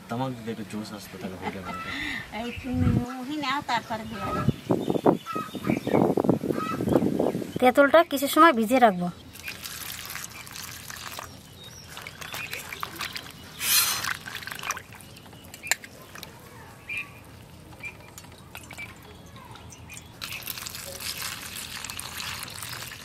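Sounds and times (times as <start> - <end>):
water pouring into steel bowl: 9.3 - 15.2, 18.4 - 23.0
hand squeezing in splashing water: 9.4 - 15.8.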